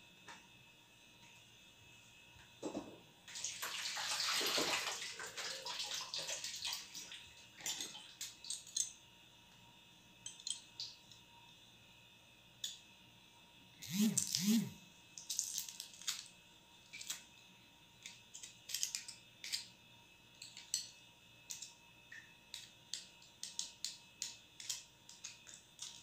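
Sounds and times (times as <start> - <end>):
water running from a tap: 3.3 - 8.2.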